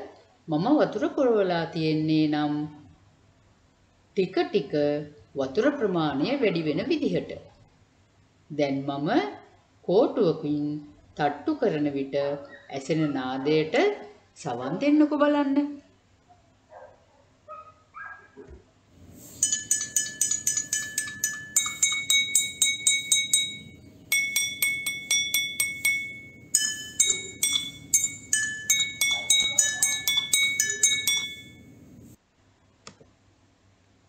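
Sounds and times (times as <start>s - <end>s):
water glasses struck with stick: 19.1s - 31.8s.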